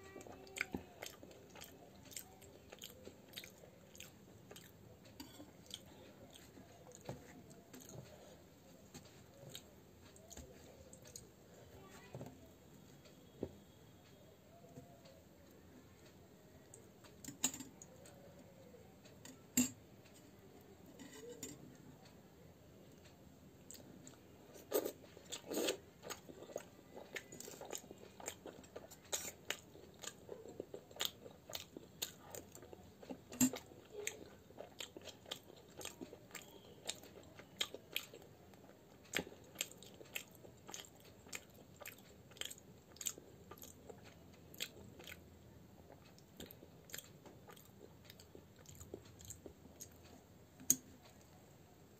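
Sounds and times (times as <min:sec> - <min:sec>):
person chewing crunchy food: 0:00.2 - 0:08.4, 0:23.7 - 0:50.1.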